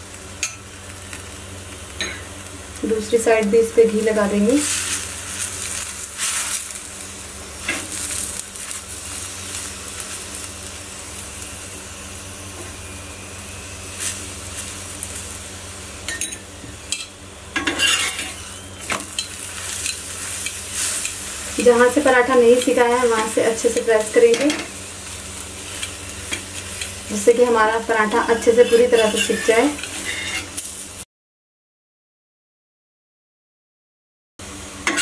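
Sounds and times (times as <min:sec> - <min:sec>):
flatbread sizzling in a pan: 0:00.0 - 0:31.1, 0:34.4 - 0:35.0
steel spatula scraping: 0:04.5 - 0:06.8, 0:16.1 - 0:30.8
steel spoon scraping a pan: 0:16.1 - 0:30.8.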